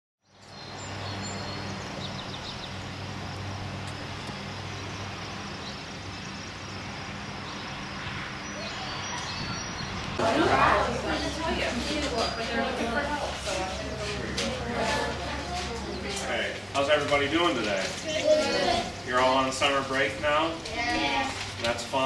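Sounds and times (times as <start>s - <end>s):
faint bird chirps: 8.4s - 10.1s.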